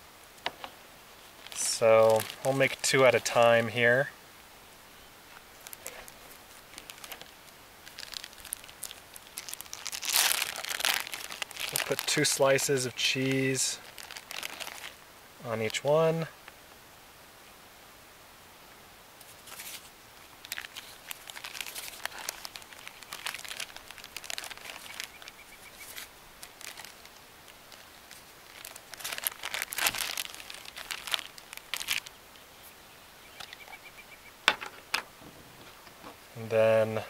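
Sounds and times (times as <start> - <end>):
plastic packaging crinkling: 1.4 - 3.6, 5.3 - 15.0, 19.4 - 32.2.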